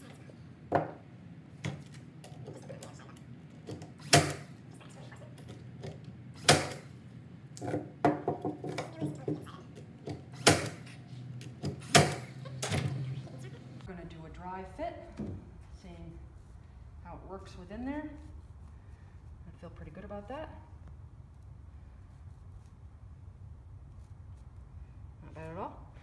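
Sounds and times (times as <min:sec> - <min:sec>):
nail gun firing: 0:04.0 - 0:04.5, 0:06.4 - 0:06.9, 0:10.4 - 0:10.8, 0:11.8 - 0:12.3.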